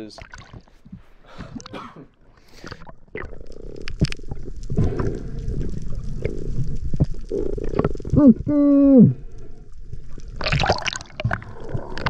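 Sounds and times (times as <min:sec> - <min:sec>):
underwater clicks: 0:02.6 - 0:08.2
muffled underwater rumble: 0:03.3 - 0:10.4.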